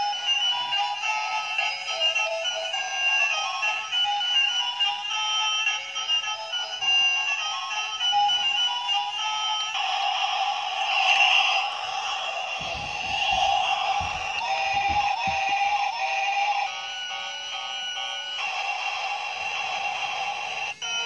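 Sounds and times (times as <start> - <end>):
toy electronic tune: 0.0 - 21.0
hiss: 9.8 - 15.1.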